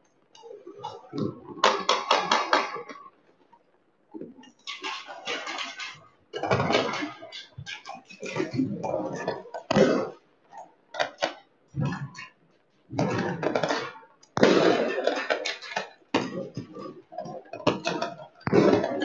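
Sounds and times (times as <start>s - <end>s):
firecrackers banging and crackling: 1.2s - 3.2s, 13.1s - 19.0s.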